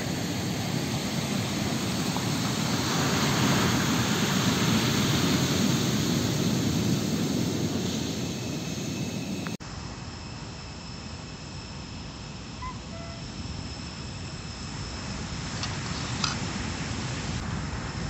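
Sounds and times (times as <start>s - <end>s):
ocean waves breaking: 0.0s - 8.1s.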